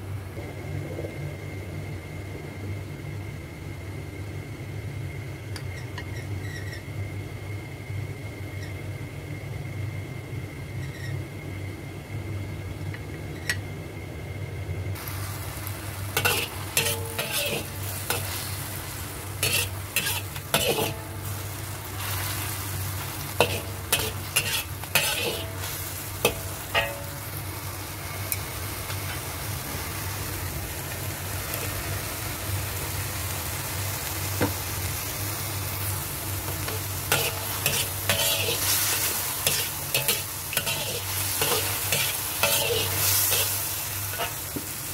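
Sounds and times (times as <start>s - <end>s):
low hum: 0.0s - 6.2s
meat sizzling in a wok: 15.0s - 44.9s
metal spatula scraping a wok: 16.1s - 27.2s, 36.5s - 44.6s.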